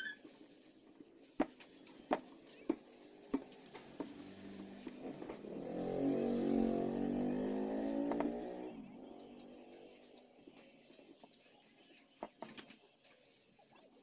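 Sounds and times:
vehicle engine passing by: 3.0 - 10.5.

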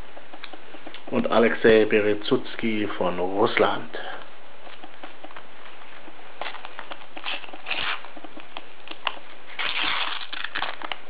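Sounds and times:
foil wrapper crinkling: 3.6 - 11.0
wrapper tearing rustle: 6.4 - 8.2, 8.9 - 11.0.

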